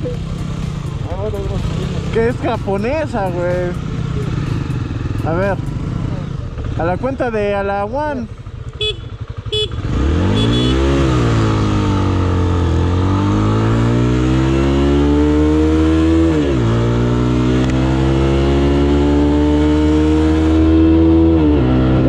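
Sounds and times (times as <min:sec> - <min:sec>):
motorcycle accelerating hard: 0:08.8 - 0:22.0.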